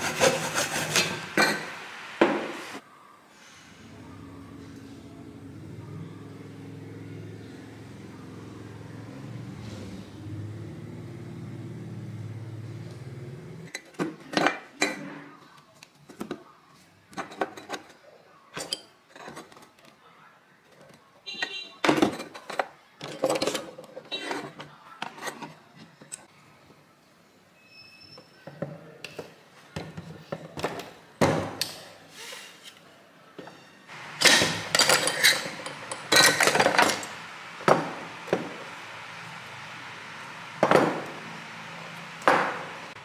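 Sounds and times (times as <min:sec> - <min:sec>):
gas stove burner humming: 0:33.9 - 0:43.0.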